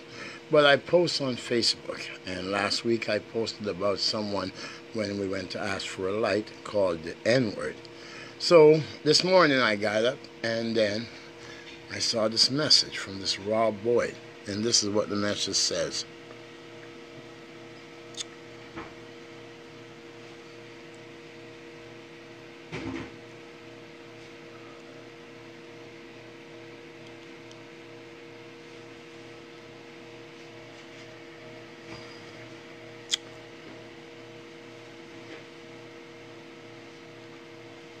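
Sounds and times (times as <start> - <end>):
machine hum: 0.0 - 38.0.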